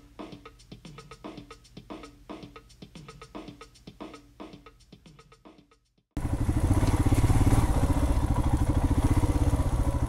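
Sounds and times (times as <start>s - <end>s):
background music with a beat: 0.0s - 6.0s
motorcycle engine running: 6.2s - 10.0s.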